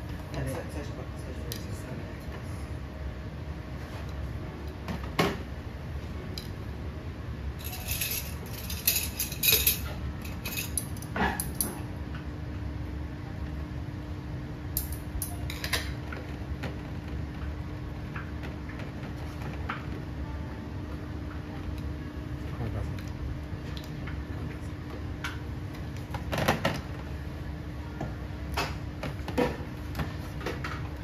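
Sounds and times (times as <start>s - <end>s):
low steady hum: 0.0s - 31.0s
dishes and utensils clinking: 7.6s - 11.8s.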